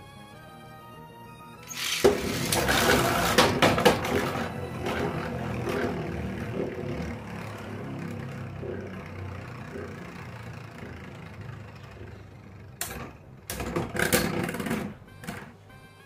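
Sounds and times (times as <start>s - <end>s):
spinning tops whirring: 1.6s - 13.1s
spinning tops clacking together: 1.7s - 3.8s.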